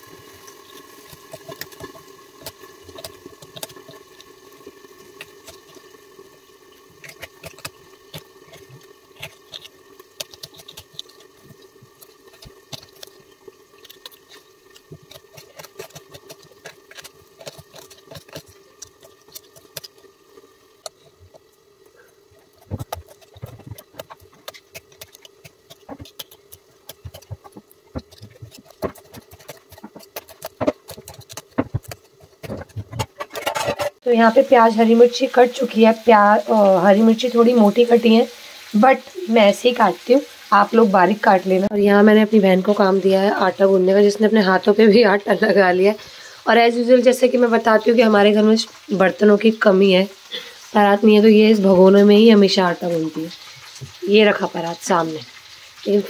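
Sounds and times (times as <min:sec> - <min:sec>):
appliance hum: 0:00.0 - 0:56.0
blade chopping on stone: 0:22.6 - 0:33.9
knife cutting on stone countertop: 0:22.6 - 0:33.9.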